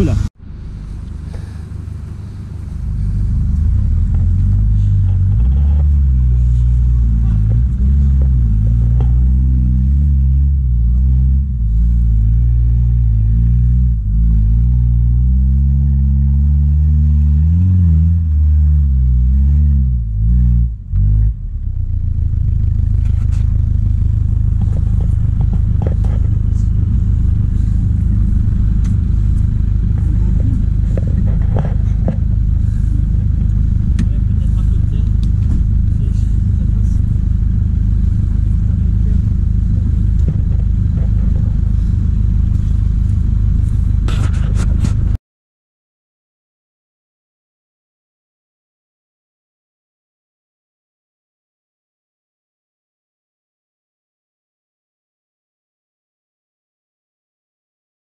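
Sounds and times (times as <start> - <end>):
low engine rumble: 0.0 - 45.2
off-road engine revving: 0.0 - 45.2.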